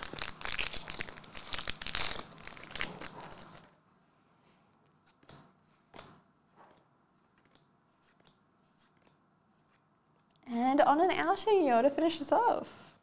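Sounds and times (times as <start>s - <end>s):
plastic wrapper crinkling: 0.0s - 3.8s
soft clicks of cards: 5.0s - 10.4s.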